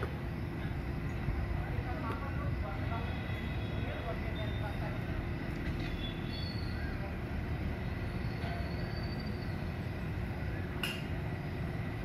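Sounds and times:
faint constant hum: 0.0 - 12.0
machinery and traffic rumble: 0.0 - 12.0
faint high chirps: 5.5 - 7.2, 7.8 - 9.8.

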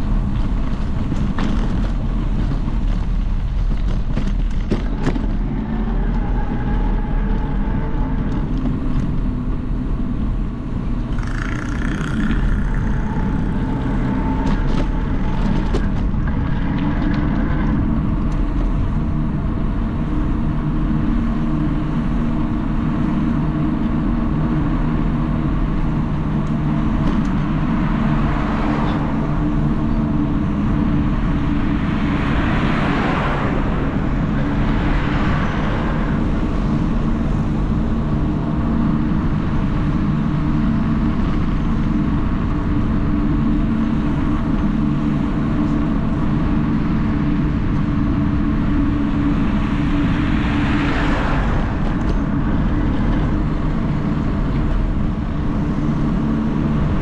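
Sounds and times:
passing traffic: 0.0 - 57.0
vehicle engine running: 0.0 - 57.0.

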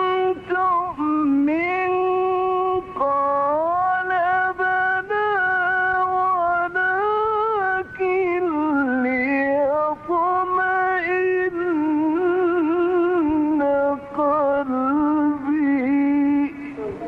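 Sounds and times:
man chanting melodically: 0.0 - 17.0.

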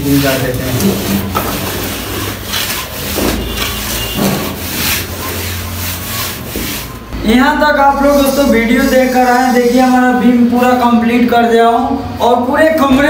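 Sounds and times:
plastering float rasping on plaster: 0.0 - 7.2, 8.0 - 10.1.

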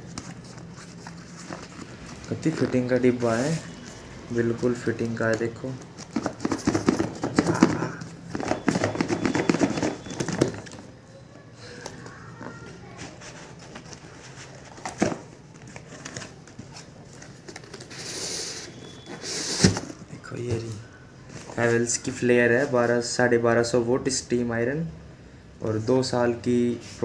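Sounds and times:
box sliding out: 17.9 - 20.0.

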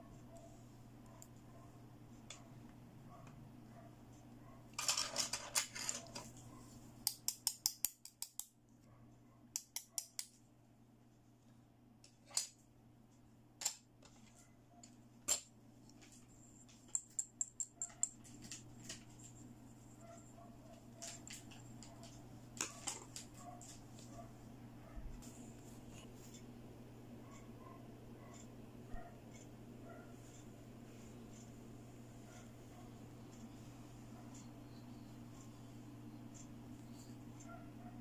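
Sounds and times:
plastic toys clicking and clattering: 4.8 - 6.3.

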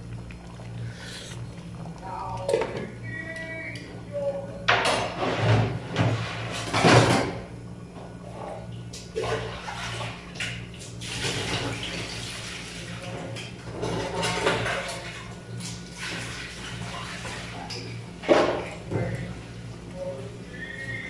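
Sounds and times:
sauce bubbling in a pot: 0.0 - 2.1
steady low hum: 0.0 - 21.0.

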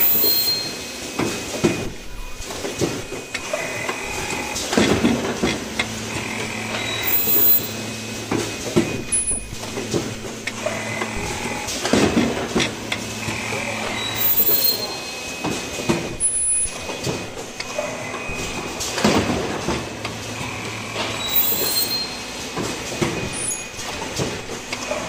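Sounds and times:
high squeals of air: 0.0 - 1.0, 21.2 - 22.3
machine humming: 0.0 - 25.0
pneumatic arms clacking: 0.0 - 25.0.

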